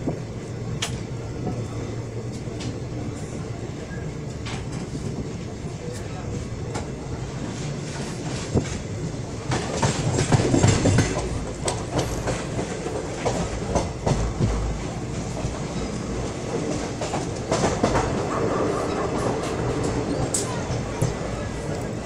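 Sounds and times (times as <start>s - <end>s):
train coach rumbling: 0.0s - 22.0s
train wheels clattering on track: 0.0s - 22.0s.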